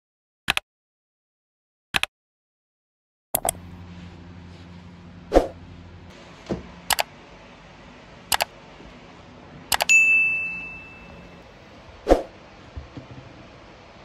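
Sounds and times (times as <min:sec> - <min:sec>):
double mouse clicks: 0:03.4 - 0:03.6
bright bell ding: 0:09.9 - 0:11.4.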